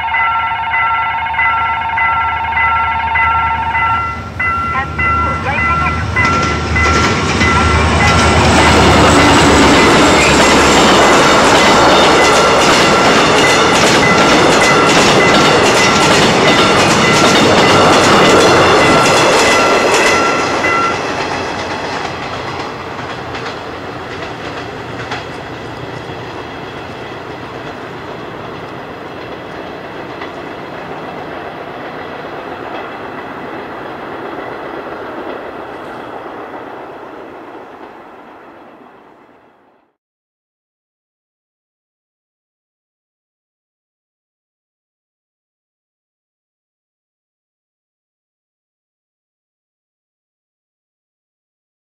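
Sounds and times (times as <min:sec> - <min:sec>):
crossing warning bell ringing: 0:00.0 - 0:33.6
train wheels clattering over rail joints: 0:06.2 - 0:36.2.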